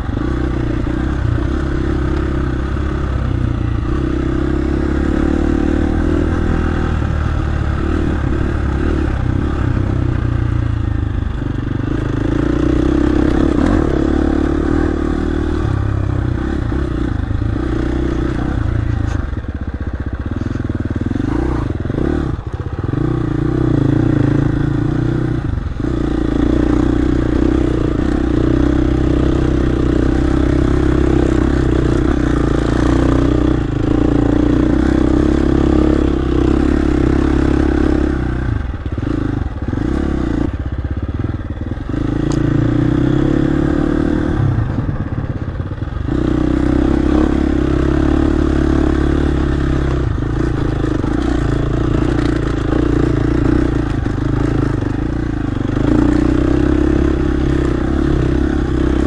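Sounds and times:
dirt bike engine revving: 0.0s - 19.5s, 20.2s - 59.0s.

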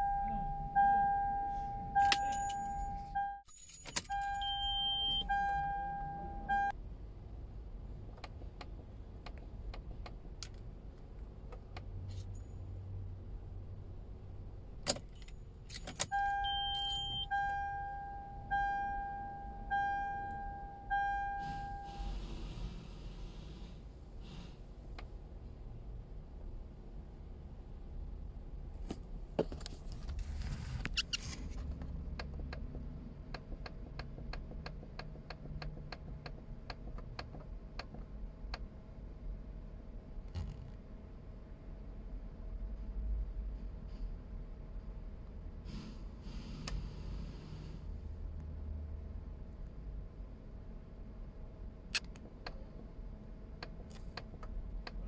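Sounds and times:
warning chime dinging: 0.0s - 6.7s, 16.0s - 22.0s.

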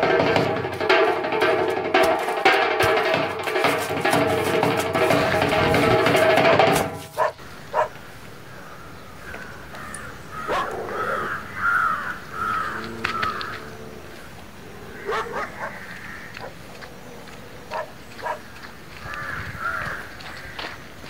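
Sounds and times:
sharp knocks: 0.0s - 7.4s
crows cawing: 0.0s - 16.9s, 17.7s - 20.8s.

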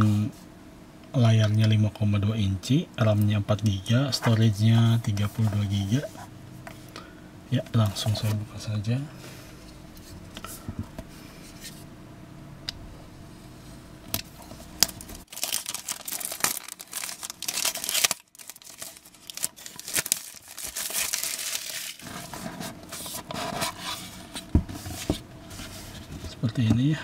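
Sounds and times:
plastic wrap crinkling and tearing: 14.8s - 24.0s.

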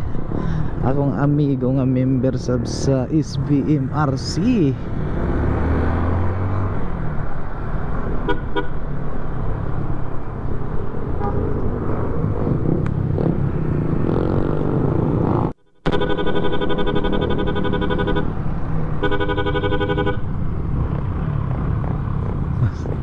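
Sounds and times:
road and wind noise: 0.0s - 23.0s
vehicle horn tooting: 15.8s - 18.3s, 19.0s - 20.2s.

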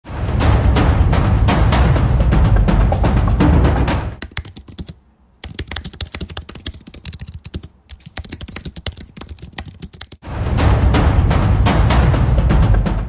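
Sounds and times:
fast typing on keyboard: 4.2s - 10.2s.

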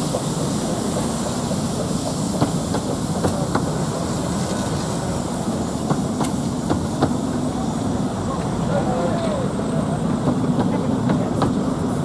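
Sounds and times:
train wheels rumbling: 0.0s - 12.0s.

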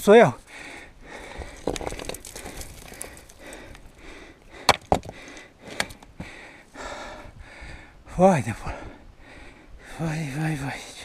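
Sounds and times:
climber knocking and scraping on rock: 1.3s - 4.0s, 4.6s - 6.1s.

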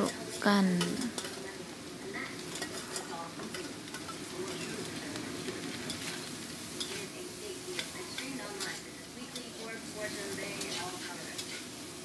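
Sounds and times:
fried rice sizzling in a wok: 0.0s - 12.0s
utensil clicking against pan: 0.8s - 1.4s, 2.4s - 7.1s, 7.7s - 9.6s, 10.3s - 11.7s.

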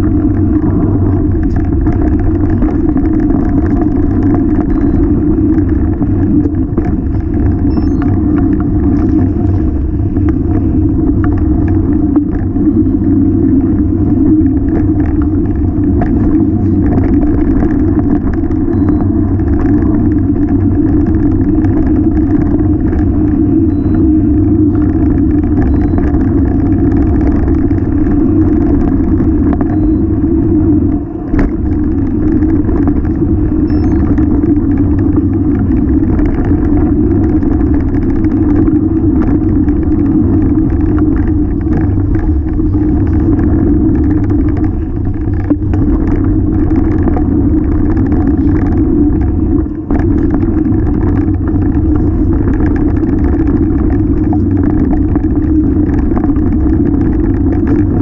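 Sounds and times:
wind and vibration rumble: 0.0s - 58.0s
bike clicks and rattles: 1.2s - 30.6s, 31.3s - 58.0s.

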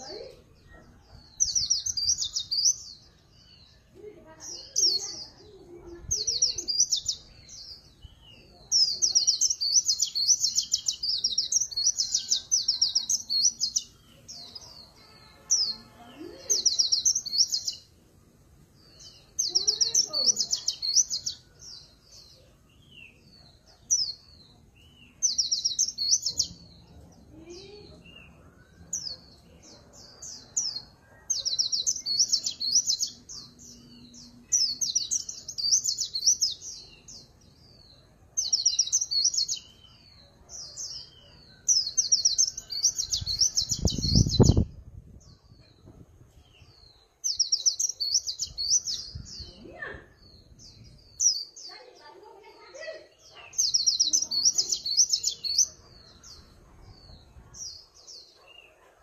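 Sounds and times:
bird singing rapid trilling warbles: 1.4s - 17.9s, 18.8s - 22.4s, 25.0s - 29.4s, 30.0s - 37.8s, 41.8s - 45.8s, 46.7s - 56.6s.

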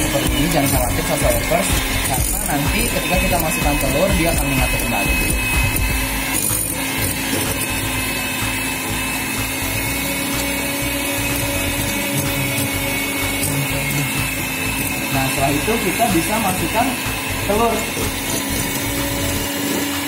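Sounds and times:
electric mixer running: 0.0s - 20.0s.

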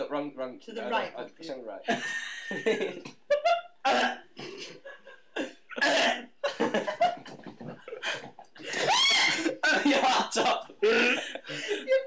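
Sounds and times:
laughter: 1.9s - 3.7s, 4.4s - 5.6s, 6.4s - 12.0s
boy gagging and coughing: 3.9s - 4.8s, 5.4s - 6.4s, 8.8s - 11.3s.

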